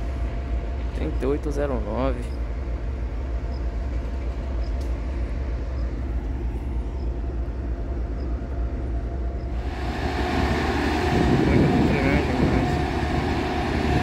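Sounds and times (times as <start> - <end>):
low diesel rumble: 0.0 - 14.0
noisy mechanical clatter: 9.6 - 14.0.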